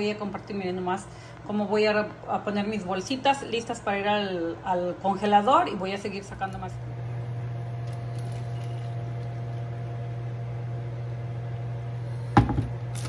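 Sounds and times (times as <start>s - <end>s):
low appliance hum: 0.0s - 13.0s
plastic pitcher knocking on board: 12.4s - 12.7s.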